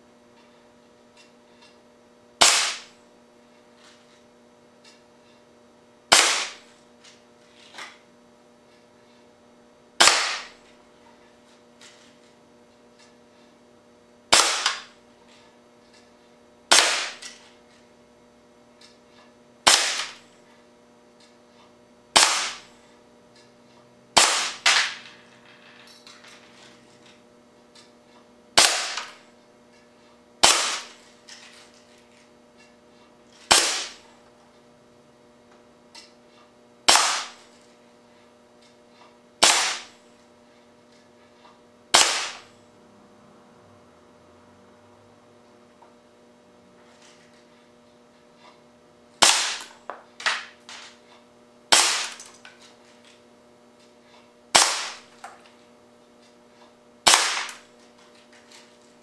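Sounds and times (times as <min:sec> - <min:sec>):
air cannon shots hitting monitor: 0:02.4 - 0:03.0, 0:06.1 - 0:06.7, 0:10.0 - 0:10.6, 0:14.3 - 0:15.0, 0:16.7 - 0:17.4, 0:19.6 - 0:20.2, 0:22.1 - 0:22.7, 0:24.2 - 0:25.0, 0:28.6 - 0:29.2, 0:30.4 - 0:31.0, 0:33.5 - 0:34.0, 0:36.9 - 0:37.5, 0:39.4 - 0:40.0, 0:41.9 - 0:42.5, 0:49.2 - 0:50.9, 0:51.7 - 0:52.3, 0:54.5 - 0:55.3, 0:57.0 - 0:57.7.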